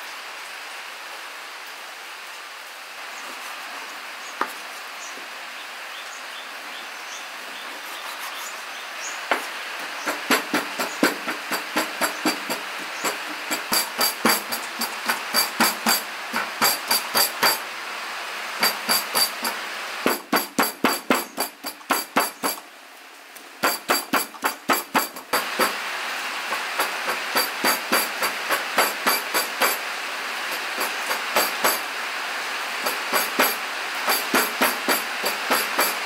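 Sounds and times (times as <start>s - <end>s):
steady hiss: 0.0s - 36.0s
cleaver chopping meat on wood: 9.3s - 17.6s, 20.1s - 22.6s.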